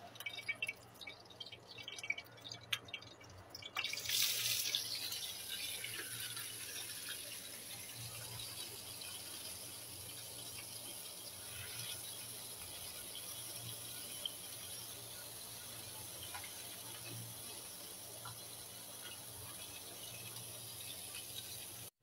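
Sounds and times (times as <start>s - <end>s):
oil popping: 0.0s - 7.4s
frying sizzle: 0.0s - 22.0s.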